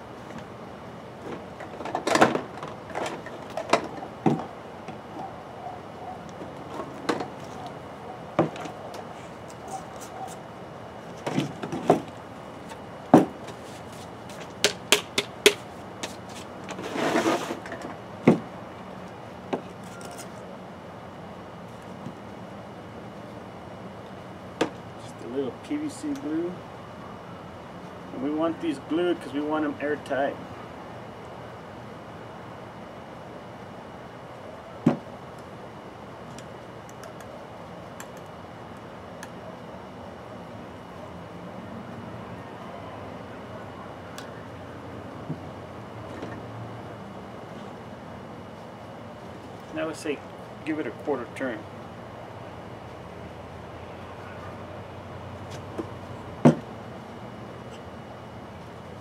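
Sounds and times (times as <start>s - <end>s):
scraping rustle: 13.4s - 14.6s, 16.0s - 17.8s.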